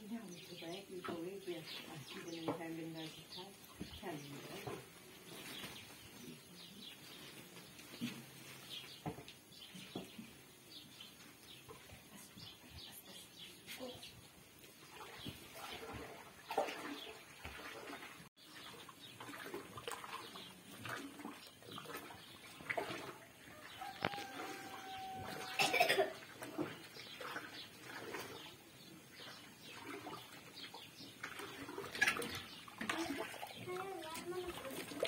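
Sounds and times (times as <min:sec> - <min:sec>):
paddle stirring thick porridge: 0:14.8 - 0:25.6
bird calls: 0:18.4 - 0:35.0.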